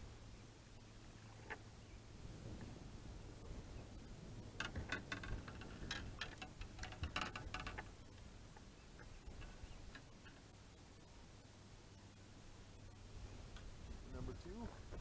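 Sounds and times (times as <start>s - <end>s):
fishing gear clicking and rattling: 4.6s - 8.2s.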